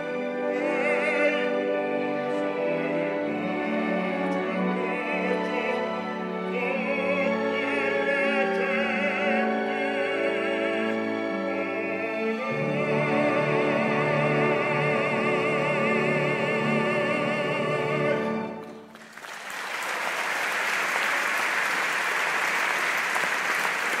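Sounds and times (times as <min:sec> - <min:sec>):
baritone singing with vibrato: 0:00.0 - 0:18.7
orchestra playing: 0:00.0 - 0:19.4
audience applause: 0:18.7 - 0:24.0.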